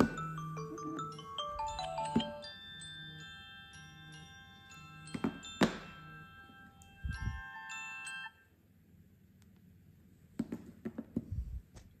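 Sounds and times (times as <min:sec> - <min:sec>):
phone alarm chiming melody: 0:00.0 - 0:08.5.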